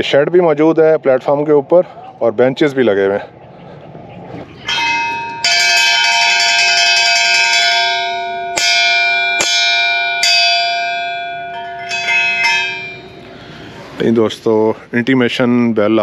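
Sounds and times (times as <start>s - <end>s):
station bell ringing: 4.7s - 13.7s.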